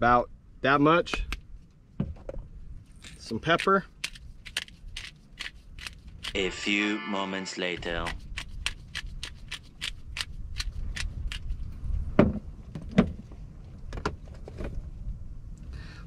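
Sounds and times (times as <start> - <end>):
wind rumble on microphone: 7.8 - 16.0.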